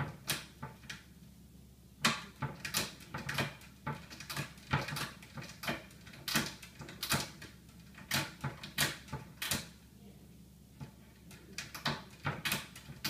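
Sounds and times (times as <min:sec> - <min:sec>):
cabinet door rattling against latch: 0:02.0 - 0:09.7, 0:11.3 - 0:13.0.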